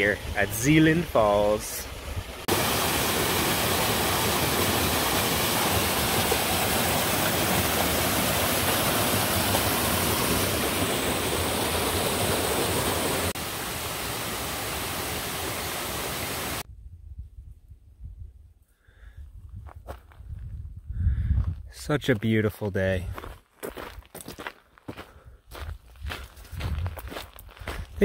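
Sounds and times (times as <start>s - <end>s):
waterfall rushing roar: 2.4s - 16.6s.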